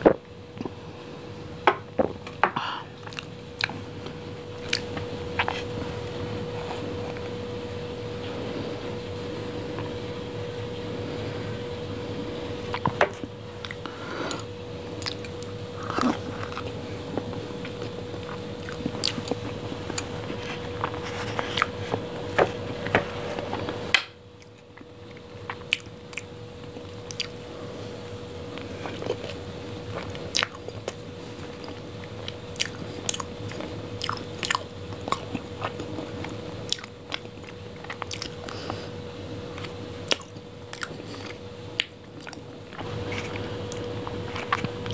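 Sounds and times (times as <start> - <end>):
faint hum: 0.0 - 44.9
wet chewing with mouth clicks: 3.0 - 5.8, 12.7 - 22.0, 24.4 - 27.4, 28.5 - 38.8, 39.5 - 44.9.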